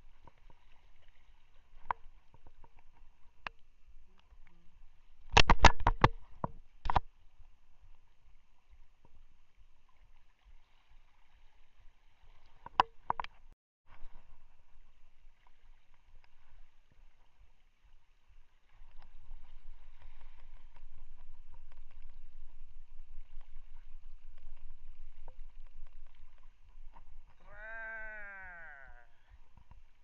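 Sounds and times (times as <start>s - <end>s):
water lapping against boat: 0.0s - 30.0s
wind rumble on microphone: 18.8s - 29.9s.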